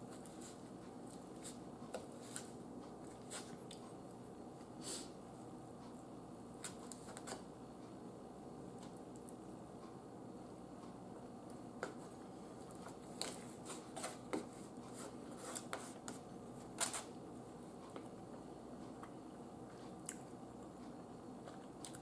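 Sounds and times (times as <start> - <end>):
fork scraping on paper plate: 13.2 - 17.1.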